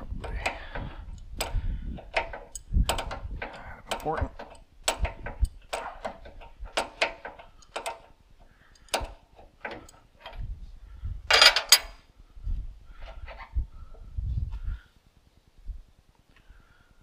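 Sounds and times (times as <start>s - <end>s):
metal clatter: 0.0s - 8.2s, 11.3s - 12.0s
metal tools clinking: 0.2s - 8.2s, 11.3s - 12.0s.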